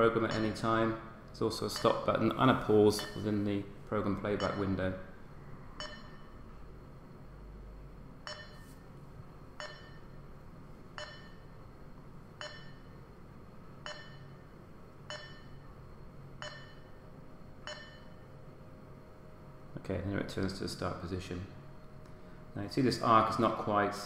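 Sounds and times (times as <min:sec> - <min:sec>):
short electronic beeps: 0:05.8 - 0:06.4, 0:08.3 - 0:08.7, 0:09.6 - 0:10.0.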